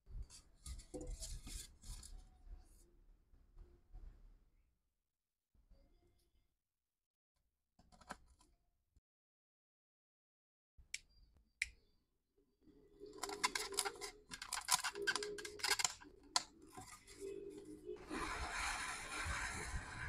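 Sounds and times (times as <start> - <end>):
polystyrene foam squeaking and crackling: 13.2 - 20.0.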